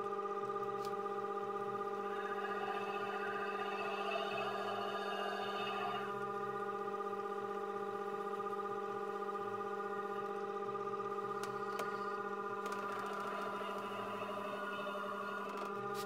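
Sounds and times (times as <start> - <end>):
cymbal lathe humming: 0.6 - 16.0
held ringing tones: 1.4 - 6.8.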